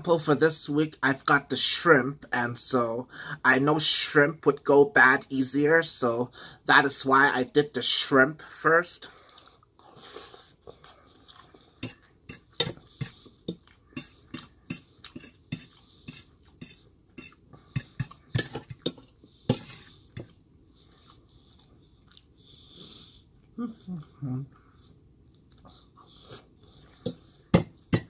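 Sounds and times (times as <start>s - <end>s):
chewing: 9.2s - 22.4s
fork scraping metal bowl: 11.8s - 20.3s.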